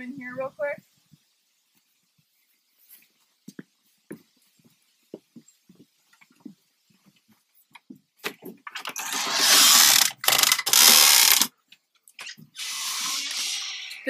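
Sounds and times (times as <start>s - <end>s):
footsteps on wooden boards: 2.9s - 8.8s
door scraping and rattling: 8.7s - 11.5s.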